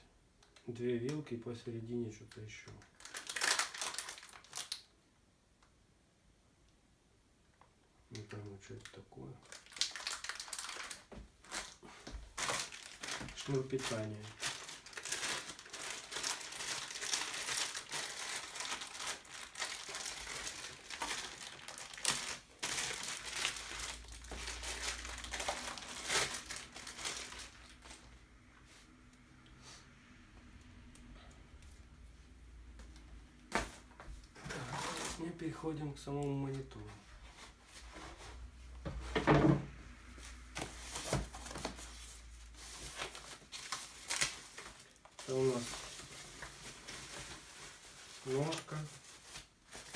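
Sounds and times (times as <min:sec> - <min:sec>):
plastic wrapping rustling: 0:02.3 - 0:04.9, 0:08.3 - 0:28.8, 0:32.8 - 0:49.9
plastic bag crinkling: 0:02.6 - 0:04.9, 0:09.4 - 0:28.0, 0:40.6 - 0:49.9.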